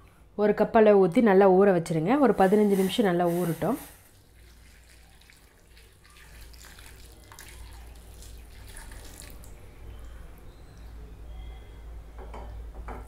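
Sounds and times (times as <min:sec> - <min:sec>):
low steady hum: 0:00.0 - 0:13.0
water pouring into a glass bowl: 0:03.8 - 0:10.4.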